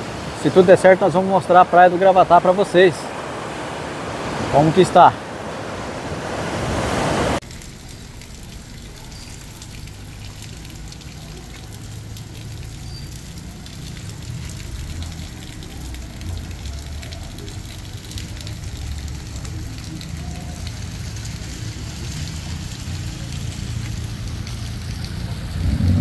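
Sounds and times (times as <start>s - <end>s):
storm surf breaking: 0.0s - 7.4s
rain pattering: 7.4s - 26.0s.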